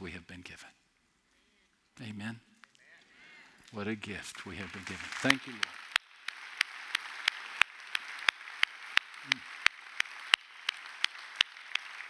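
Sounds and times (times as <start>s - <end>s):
congregation applauding: 3.4s - 12.0s
close hand claps: 4.4s - 12.0s.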